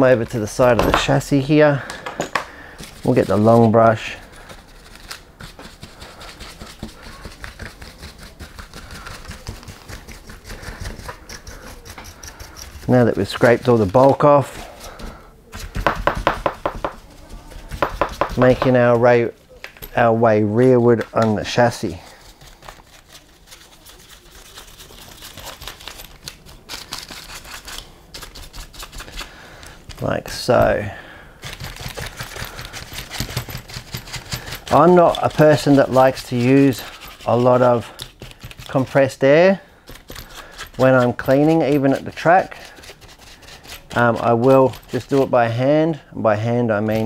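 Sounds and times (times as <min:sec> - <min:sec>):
brush scrubbing dirt: 0:02.8 - 0:15.0, 0:15.6 - 0:18.9, 0:20.5 - 0:25.9, 0:31.4 - 0:39.6, 0:40.2 - 0:45.7.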